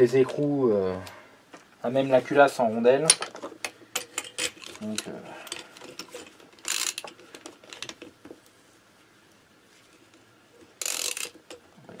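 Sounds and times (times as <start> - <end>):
ratchet wrench rattle: 6.0 - 7.9, 10.8 - 11.6.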